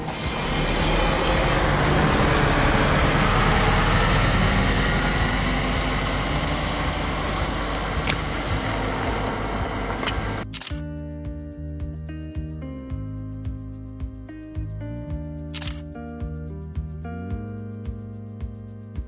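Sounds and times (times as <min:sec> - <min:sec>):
coach diesel engine driving off: 0:00.0 - 0:10.4.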